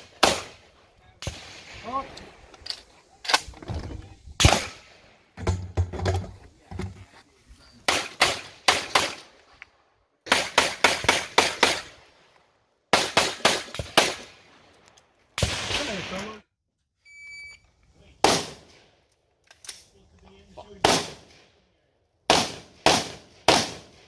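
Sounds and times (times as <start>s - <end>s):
pistol shots with echo: 0.0s - 0.6s, 4.4s - 4.8s, 18.2s - 18.7s, 20.8s - 21.4s, 22.3s - 24.0s
shot timer beep: 17.1s - 17.6s.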